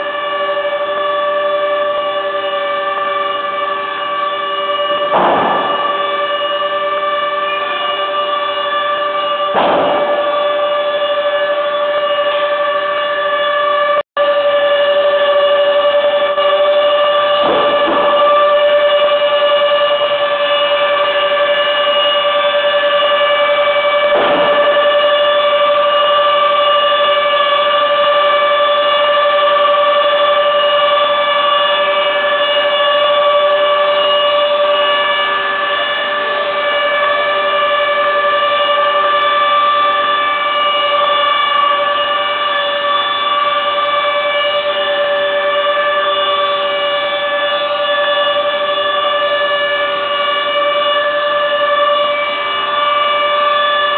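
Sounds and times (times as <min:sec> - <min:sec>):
loud machine whine: 0:00.0 - 0:53.9.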